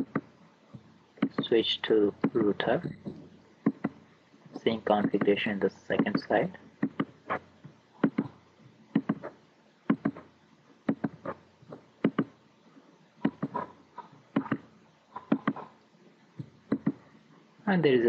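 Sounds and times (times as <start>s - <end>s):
computer mouse clicking: 1.2s - 1.5s, 3.6s - 4.0s, 6.0s - 7.2s, 8.0s - 9.3s, 9.9s - 10.3s, 10.9s - 11.4s, 12.0s - 12.3s, 14.4s - 15.7s, 16.7s - 17.0s.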